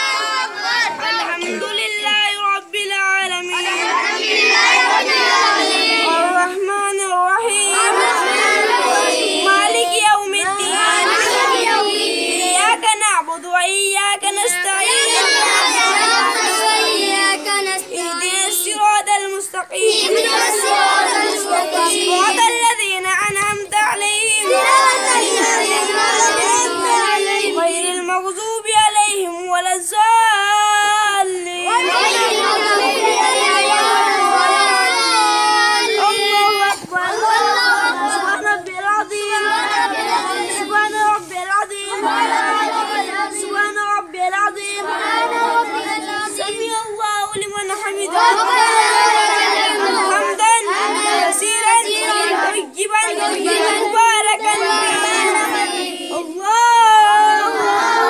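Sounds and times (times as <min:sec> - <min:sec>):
boys chanting prayer together: 0:00.0 - 0:58.0.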